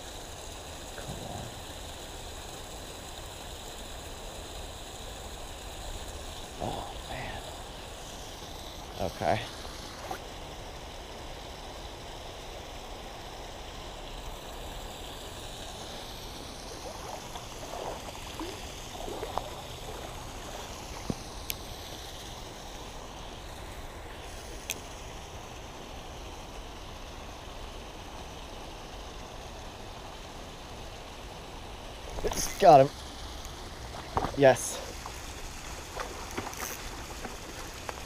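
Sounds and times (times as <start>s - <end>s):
creek flowing over gravel: 0.0s - 38.0s.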